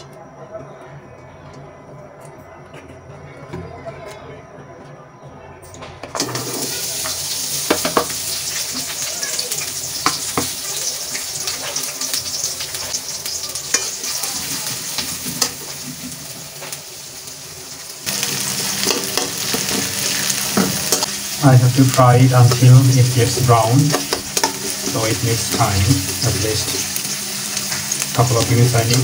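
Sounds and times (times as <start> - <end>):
food sizzling in hot oil: 6.2 - 29.0
metal spoon scraping wok: 22.4 - 28.1.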